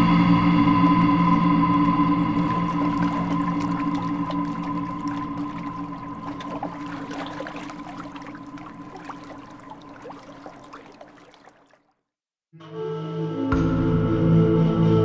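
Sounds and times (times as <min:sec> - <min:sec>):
water lapping and trickling: 0:00.8 - 0:12.0
music: 0:12.6 - 0:15.0.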